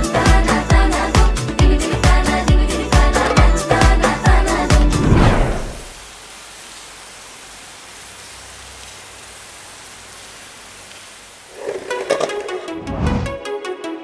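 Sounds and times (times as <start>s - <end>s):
music: 0.0s - 5.3s, 11.9s - 14.0s
steady hiss: 3.2s - 12.6s.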